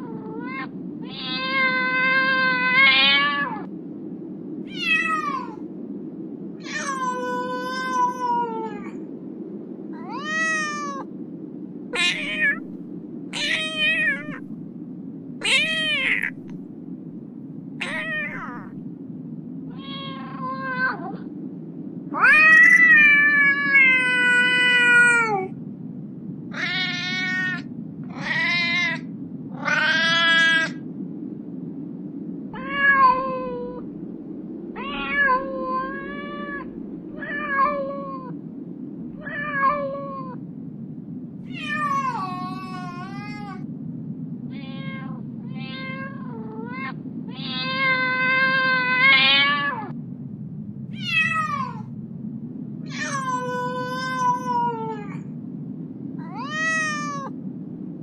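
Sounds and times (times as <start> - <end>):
kittens meowing: 0.0 - 3.7, 6.6 - 8.9, 12.0 - 12.8, 13.4 - 14.4, 15.4 - 16.5, 17.8 - 18.7, 19.7 - 21.2, 22.2 - 25.5, 26.5 - 30.8, 41.5 - 43.7, 44.5 - 49.9, 52.9 - 55.2, 56.2 - 57.3
low background hum: 0.0 - 58.0.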